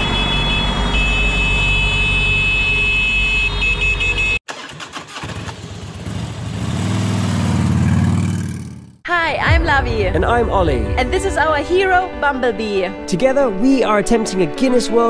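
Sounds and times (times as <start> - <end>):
street traffic rumble: 0.0 - 4.4, 5.4 - 9.0
motorcycle engine: 0.0 - 9.0.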